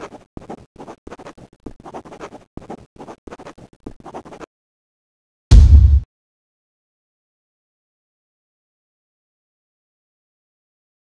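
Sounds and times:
pen scratching on paper: 0.0s - 4.5s
loud deep boom: 5.5s - 6.1s.

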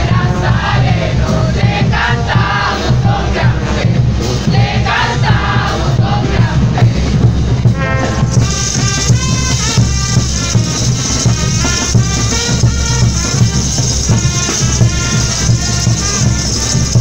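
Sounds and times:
group singing in chorus: 0.0s - 7.8s
brass band playing: 0.0s - 17.0s
drums: 0.0s - 17.0s.

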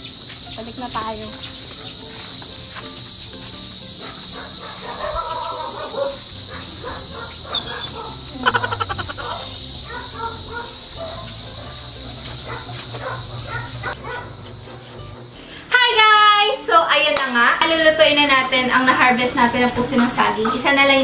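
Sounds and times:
insects trilling: 0.0s - 15.5s.

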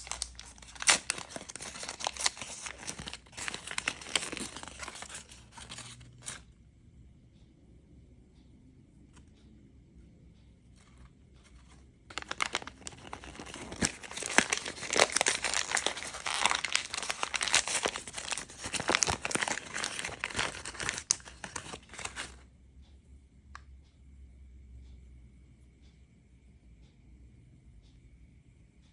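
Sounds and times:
paper wrapper crinkling and tearing: 0.0s - 6.4s, 12.1s - 22.4s.

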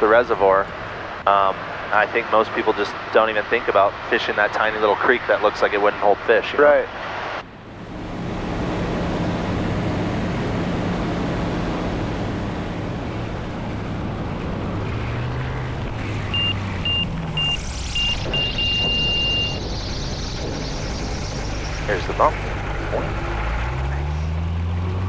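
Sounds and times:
light plane engine and propeller: 0.0s - 25.0s
wind noise: 7.0s - 23.2s
cockpit warning tone beeping: 16.1s - 23.3s.

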